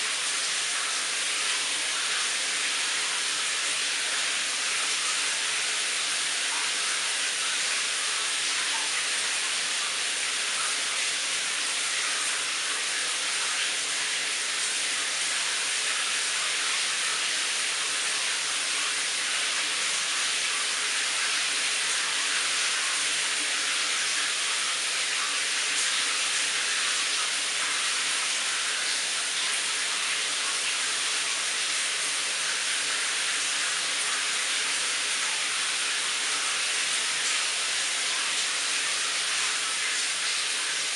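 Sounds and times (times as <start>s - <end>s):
shower water spraying on tiles: 0.0s - 40.9s.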